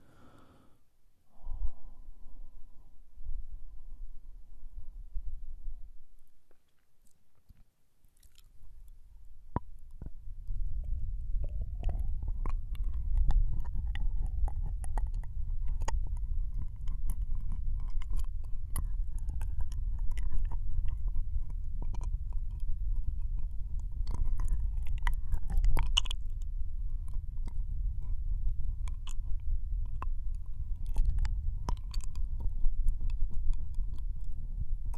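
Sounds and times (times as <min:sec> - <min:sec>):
low rumble of mic contact: 0:01.2 - 0:06.6, 0:08.6 - 0:34.9
wet licking on microphone: 0:09.9 - 0:34.5.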